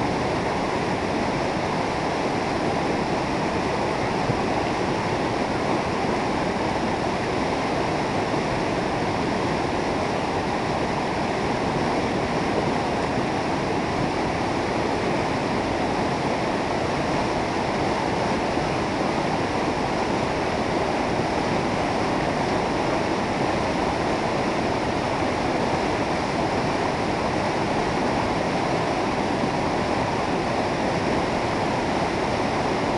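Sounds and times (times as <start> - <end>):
river rushing over rocks: 0.0 - 32.9.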